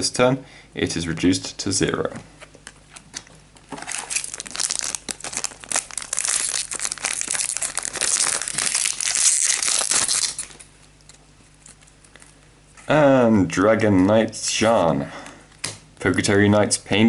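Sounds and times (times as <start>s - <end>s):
foil wrapper crinkling and tearing: 3.0s - 10.7s.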